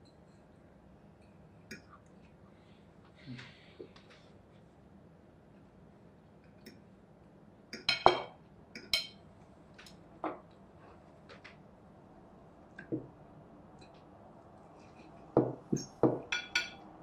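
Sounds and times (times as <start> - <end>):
cutlery clinking on plates: 7.8 - 9.2, 15.4 - 16.9.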